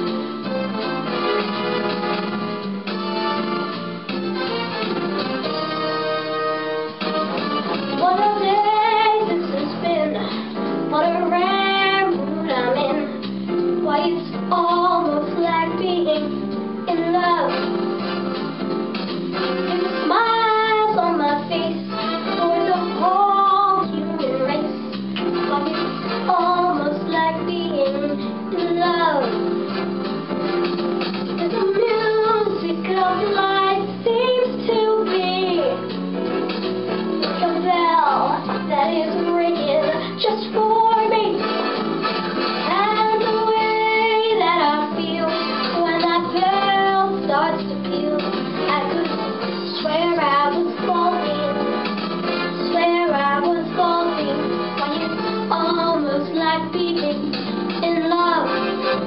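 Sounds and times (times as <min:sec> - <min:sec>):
instrumental accompaniment: 0:00.0 - 0:59.0
girl singing: 0:08.0 - 0:13.2, 0:13.8 - 0:17.7, 0:19.6 - 0:29.4, 0:31.4 - 0:35.8, 0:37.4 - 0:41.4, 0:42.6 - 0:51.7, 0:52.5 - 0:58.6.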